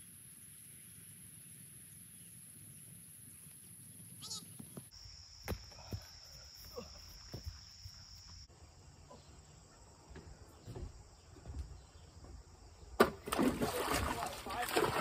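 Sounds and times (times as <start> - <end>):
crickets chirping: 0.0 - 15.0
splash into swimming pool: 13.0 - 15.0.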